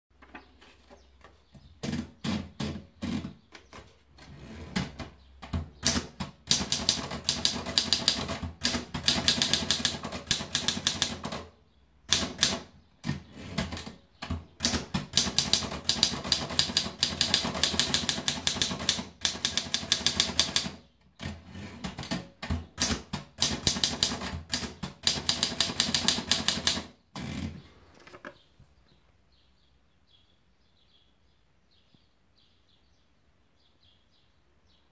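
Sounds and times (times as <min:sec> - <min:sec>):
typewriter keys striking: 0:05.4 - 0:11.4, 0:12.1 - 0:12.6, 0:13.6 - 0:20.8, 0:21.8 - 0:26.9.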